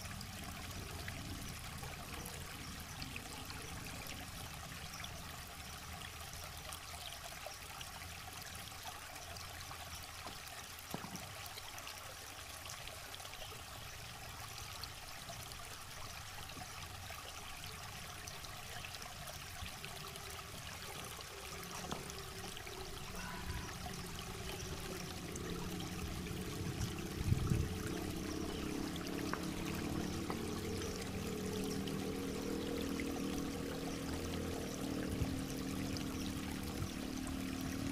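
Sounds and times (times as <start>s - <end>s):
river water flowing: 0.0s - 37.9s.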